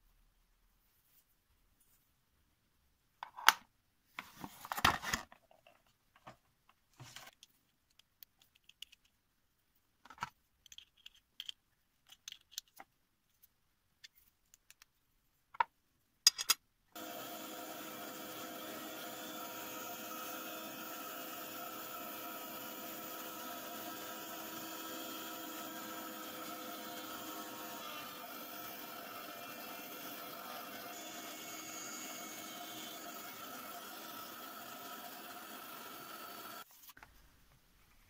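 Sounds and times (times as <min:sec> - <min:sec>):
metal bits clicking and rattling: 0:10.6 - 0:12.8
rotary tool motor whining: 0:17.0 - 0:36.7.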